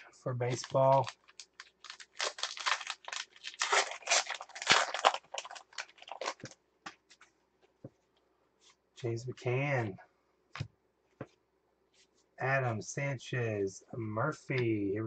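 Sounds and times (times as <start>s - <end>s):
foil wrapper tearing and crinkling: 0.5s - 6.6s.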